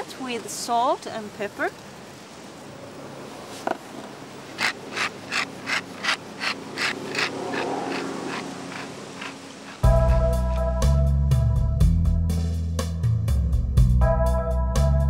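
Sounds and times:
pepper mill grinding: 0:04.6 - 0:10.6.

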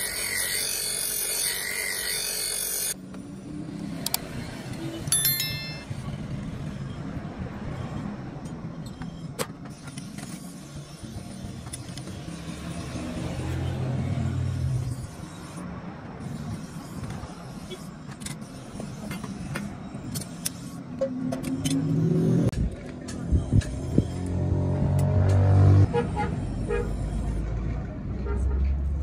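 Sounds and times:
bench grinder grinding steel: 0:00.0 - 0:03.0
rising chime: 0:05.1 - 0:06.0.

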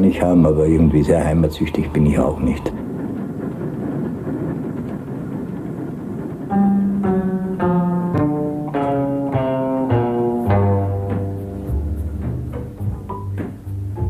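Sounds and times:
train rumbling inside carriage: 0:00.0 - 0:14.0
low string music: 0:06.5 - 0:14.0.

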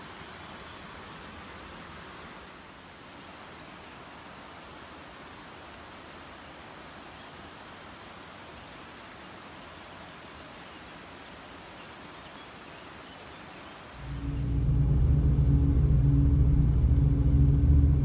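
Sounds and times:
outdoor hiss: 0:00.0 - 0:18.0
car engine and road noise: 0:14.0 - 0:18.0.

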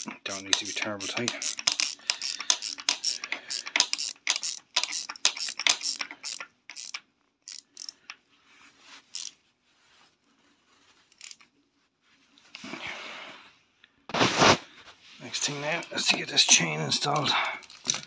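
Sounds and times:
socket ratchet clicking: 0:00.0 - 0:08.2, 0:11.2 - 0:11.4.

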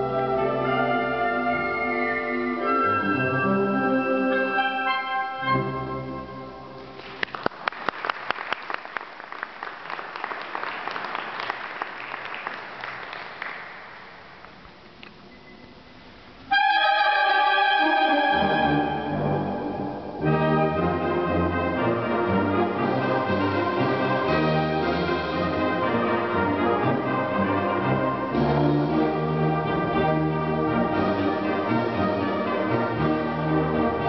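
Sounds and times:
applause: 0:07.0 - 0:14.6
concert band holding chords: 0:17.7 - 0:34.0.

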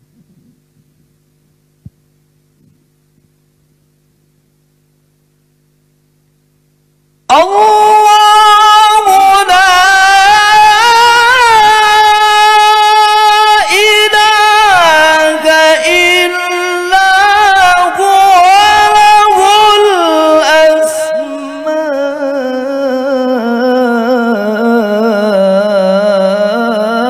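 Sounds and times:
man reciting melodically: 0:07.3 - 0:27.0.

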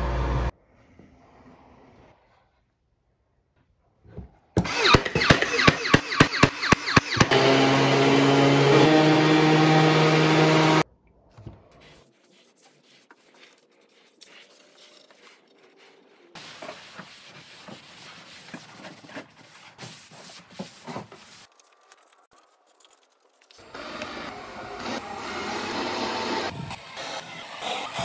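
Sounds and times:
orbital sander humming: 0:07.1 - 0:10.8.

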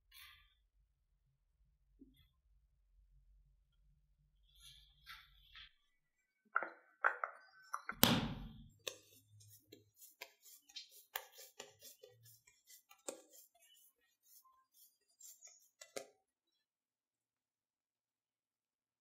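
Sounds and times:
dough taps and clicks: 0:06.6 - 0:13.4.

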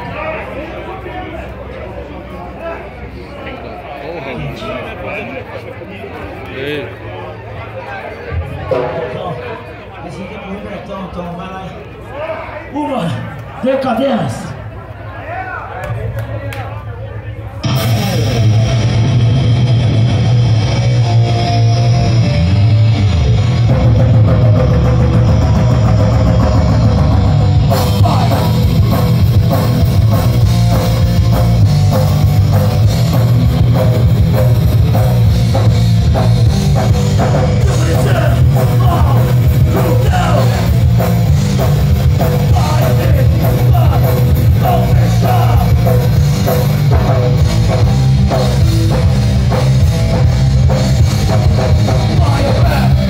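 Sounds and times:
distorted electric guitars: 0:17.5 - 0:53.0
drum kit: 0:17.6 - 0:53.0
live heavy rock band: 0:17.6 - 0:53.0.

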